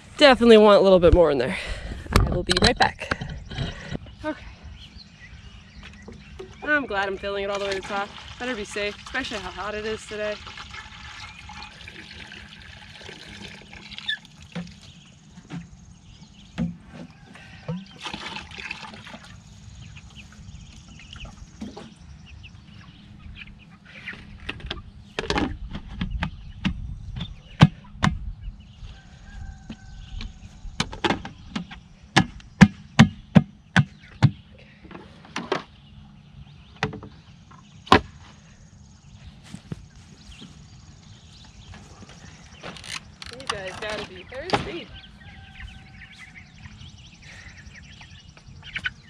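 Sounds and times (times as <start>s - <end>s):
water pouring into bucket: 7.4s - 14.8s, 17.9s - 19.4s.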